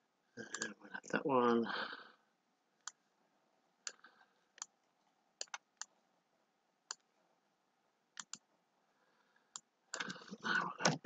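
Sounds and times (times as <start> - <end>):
computer mouse clicking: 5.4 - 6.0, 8.2 - 8.4.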